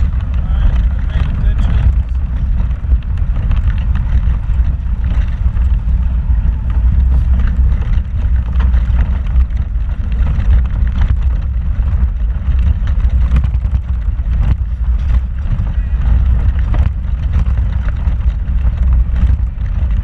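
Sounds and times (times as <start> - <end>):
knocks and rattles: 0.0 - 20.0
off-road vehicle engine rumble: 0.0 - 20.0.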